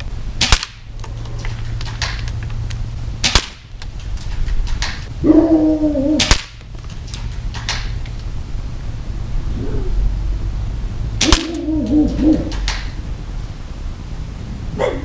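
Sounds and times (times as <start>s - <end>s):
airsoft shots hitting screen: 0.4s - 0.9s, 3.2s - 3.8s, 6.2s - 6.7s, 11.2s - 11.7s.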